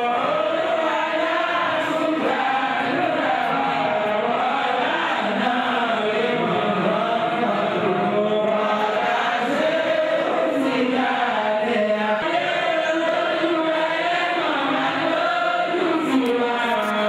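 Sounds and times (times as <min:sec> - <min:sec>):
voices chanting: 0:00.0 - 0:17.0.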